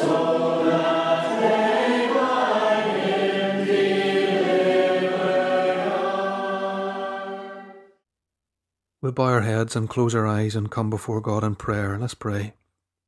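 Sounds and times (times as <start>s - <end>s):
group singing unaccompanied: 0.0s - 7.9s.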